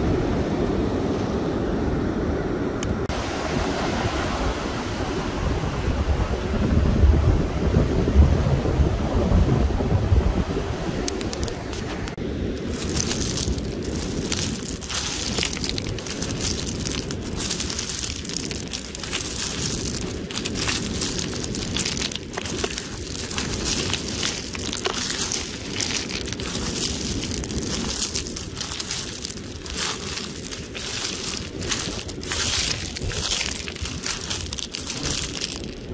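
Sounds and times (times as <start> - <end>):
wind rumble on microphone: 0.0 - 35.9
pebbles clicking and clattering: 12.5 - 35.9.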